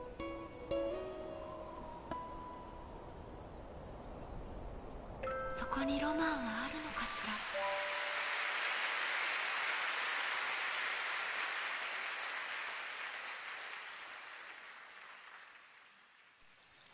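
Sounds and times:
audience applauding: 6.8 - 16.5.

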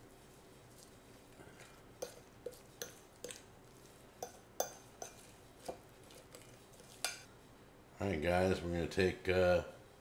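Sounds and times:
fork clinking against dish: 2.0 - 3.4, 4.2 - 5.3.

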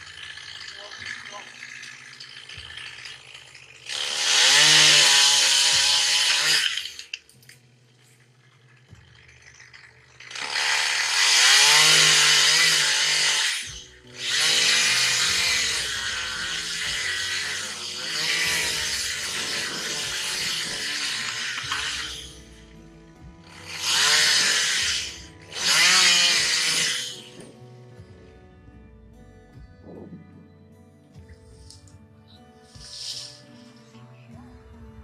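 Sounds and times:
chainsaw running at speed: 0.0 - 7.2, 9.7 - 27.6.

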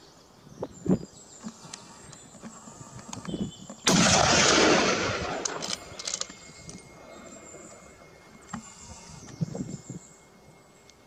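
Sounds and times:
gunshot echoing off hillside: 3.9 - 6.0.

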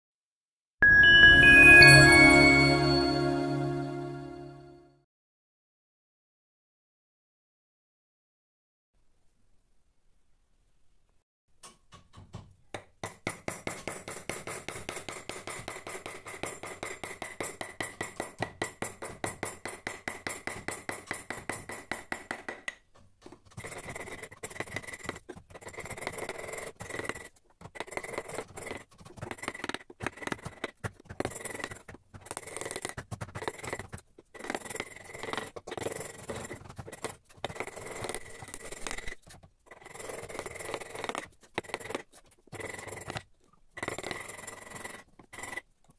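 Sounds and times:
chisel cutting wood: 23.4 - 45.7.

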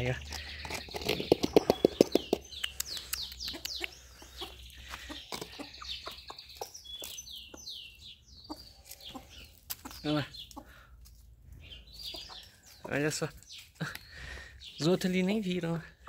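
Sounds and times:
high falling bird chirps: 0.0 - 16.0
chickens clucking softly: 1.3 - 7.7.

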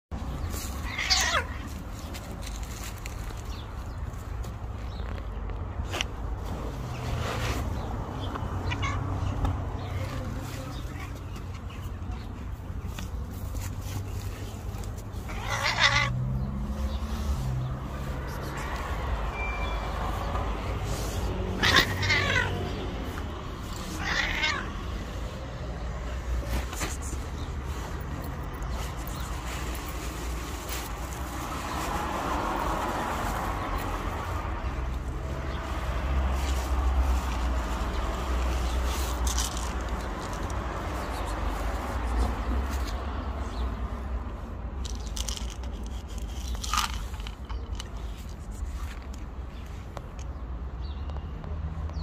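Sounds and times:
cat kibble rattling on paving: 0.5 - 3.6, 15.2 - 16.1, 21.6 - 22.6, 23.7 - 24.7, 38.3 - 41.4, 44.8 - 49.3
cat meowing: 0.7 - 1.7, 8.6 - 9.3, 15.3 - 16.2, 21.6 - 22.8, 23.7 - 24.8.

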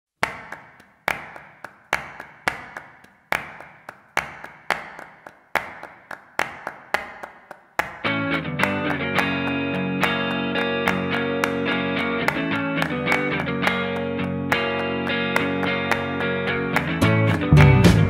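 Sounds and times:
sharp percussive hits: 0.2 - 9.4
band with guitars: 8.0 - 18.0.

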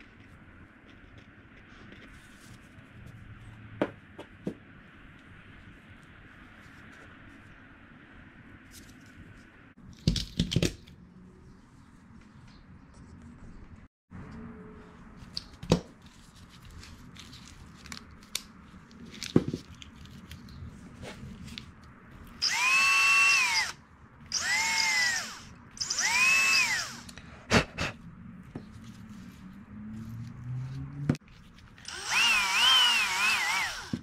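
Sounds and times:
power drill whining: 22.4 - 27.2, 31.8 - 34.0.

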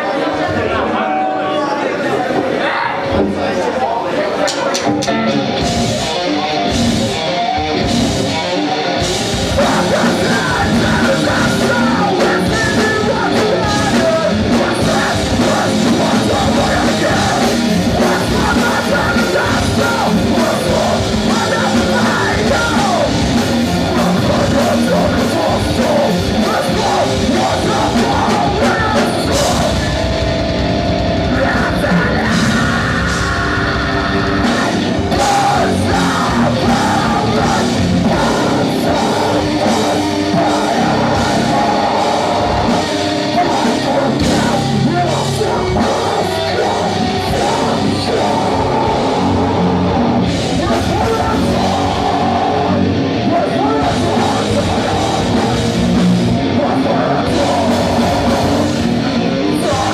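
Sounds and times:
metalcore band playing loud: 0.0 - 59.9
person singing: 4.5 - 30.3, 31.2 - 59.9.

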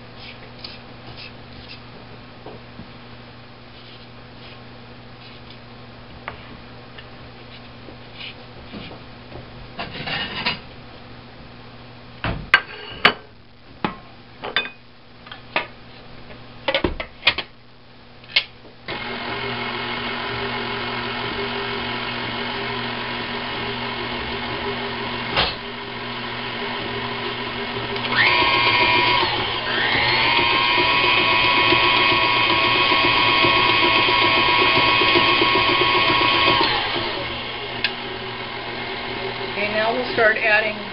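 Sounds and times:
stand mixer whining: 18.9 - 40.2.

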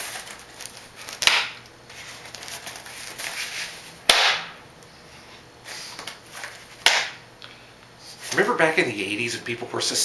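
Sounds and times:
strap slapping against foam: 4.1 - 4.5.

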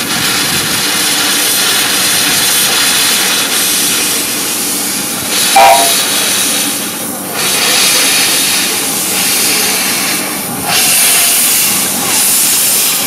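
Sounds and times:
steam hissing: 0.0 - 13.0
steam locomotive moving off: 0.0 - 13.0
steam whistle toot: 5.4 - 6.1.

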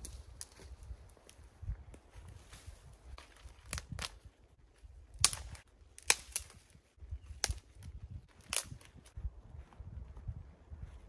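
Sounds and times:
dry branches snapping: 0.0 - 2.0, 2.6 - 4.4, 5.0 - 9.1.

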